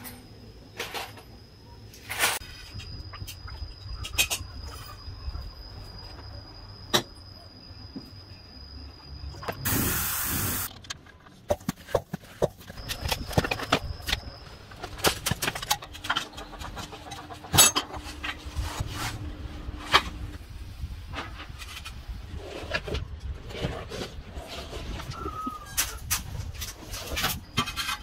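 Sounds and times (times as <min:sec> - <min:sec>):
hiss burst: 0:09.6 - 0:10.7
tools and metal parts knocking: 0:10.7 - 0:18.1.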